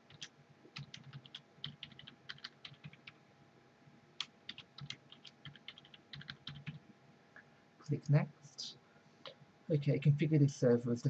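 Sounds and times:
computer keyboard typing: 0:00.0 - 0:03.2, 0:04.2 - 0:06.8.

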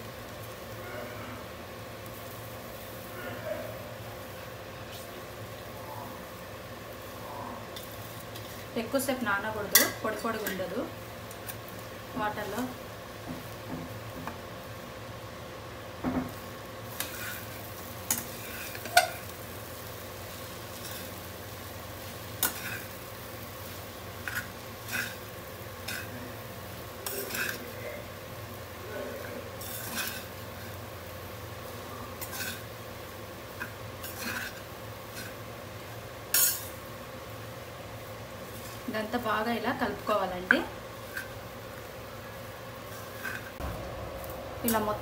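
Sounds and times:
steady faint hum: 0:00.0 - 0:45.0
spatula scraping a pan: 0:16.9 - 0:19.3, 0:20.7 - 0:21.3, 0:22.4 - 0:23.0, 0:24.2 - 0:26.3, 0:27.0 - 0:27.8, 0:29.2 - 0:30.8, 0:32.0 - 0:32.8, 0:33.6 - 0:35.4, 0:36.3 - 0:36.7, 0:41.0 - 0:41.4, 0:42.8 - 0:43.6.

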